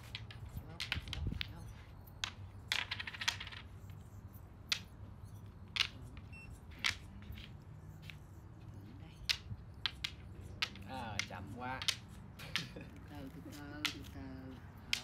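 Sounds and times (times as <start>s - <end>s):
wooden game pieces clicking on board: 0.0s - 15.0s.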